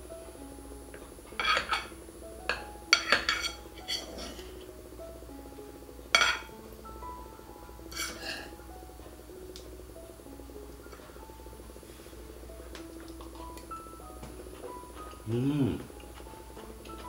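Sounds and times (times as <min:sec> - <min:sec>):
soft background music: 0:00.0 - 0:17.0
spoon scraping ceramic bowl: 0:01.4 - 0:01.9, 0:03.0 - 0:04.5, 0:07.9 - 0:08.5.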